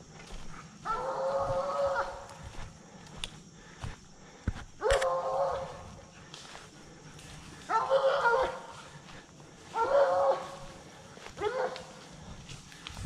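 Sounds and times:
dog barking: 0.9s - 2.3s, 4.8s - 5.8s, 7.7s - 8.7s, 9.7s - 10.6s, 11.4s - 12.0s.

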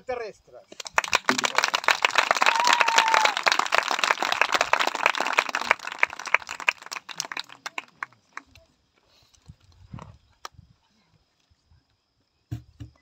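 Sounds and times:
audience applauding: 0.8s - 8.4s.

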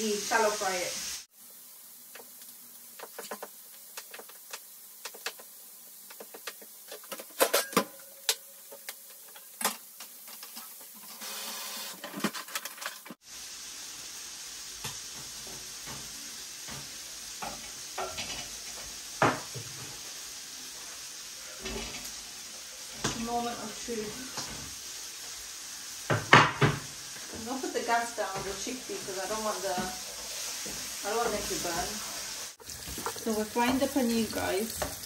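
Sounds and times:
light sizzle: 0.0s - 35.0s
spoon stirring in frying pan: 2.1s - 7.2s, 22.8s - 35.0s.

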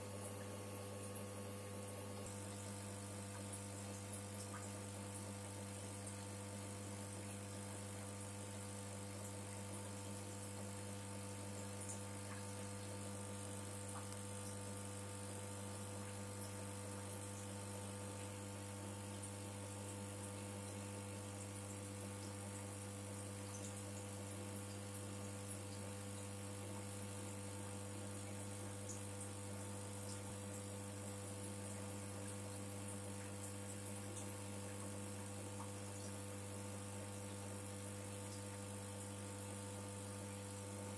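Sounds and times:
steady low hum: 0.0s - 3.5s
low electrical hum: 0.0s - 40.9s.

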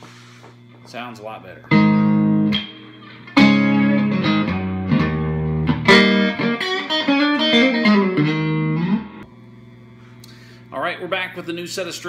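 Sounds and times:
electric guitar blues phrase: 1.7s - 9.2s.

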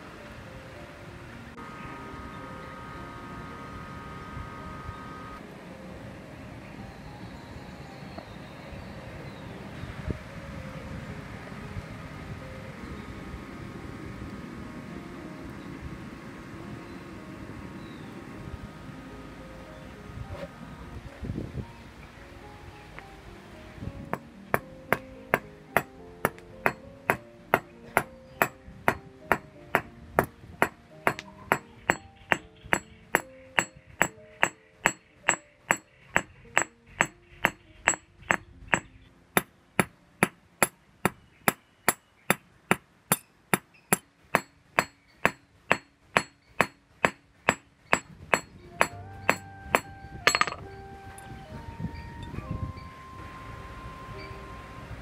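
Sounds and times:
background music: 0.0s - 40.7s, 47.0s - 55.0s
hammer clanging on steel: 24.1s - 50.7s.

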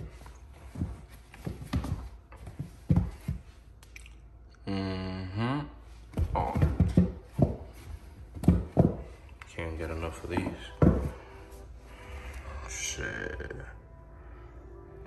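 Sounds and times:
shoes knocking and rubbing: 0.0s - 3.5s, 6.1s - 9.3s, 9.9s - 11.3s.

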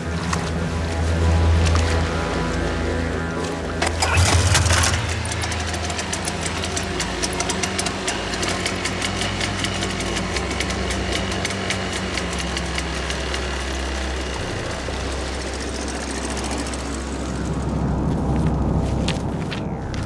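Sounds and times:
sustained low bass notes: 0.0s - 20.0s
rapid ticking percussion: 2.8s - 18.8s.

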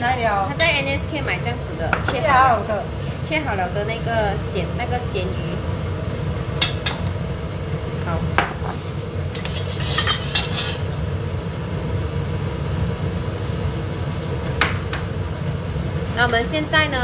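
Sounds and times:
steady low hum: 0.0s - 17.0s
utensils and dishes clinking: 9.4s - 10.9s.

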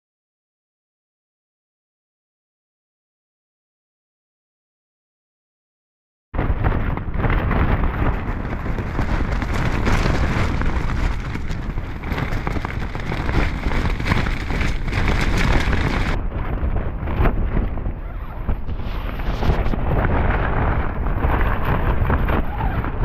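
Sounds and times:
tent fabric flapping: 6.4s - 23.0s
wind rumble on microphone: 6.4s - 23.0s.

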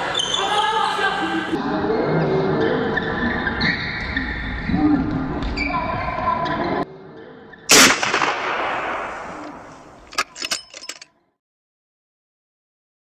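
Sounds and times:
echoing rifle gunshot: 7.7s - 10.5s.

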